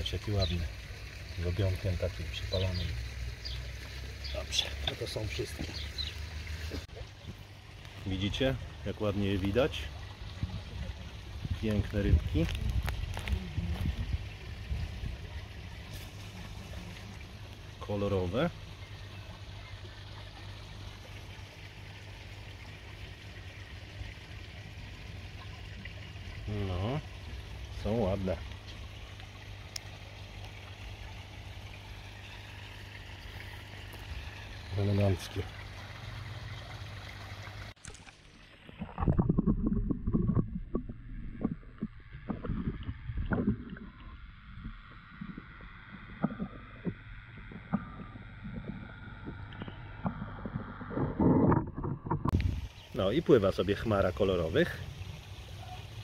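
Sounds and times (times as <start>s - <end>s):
low steady hum: 0.0s - 56.0s
muffled underwater sloshing: 0.0s - 56.0s
water trickling at a pond: 0.0s - 56.0s
underwater taps: 38.8s - 52.6s.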